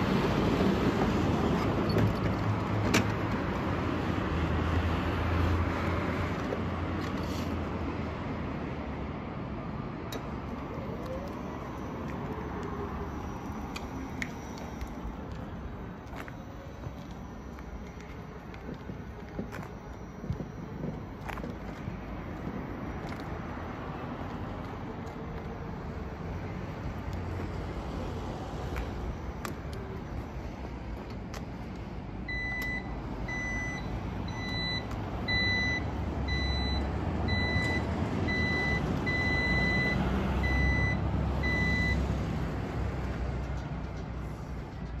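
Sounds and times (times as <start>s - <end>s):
mobility scooter motor hum: 10.1s - 23.4s
high warning beeps: 11.2s - 23.5s, 32.2s - 42.1s.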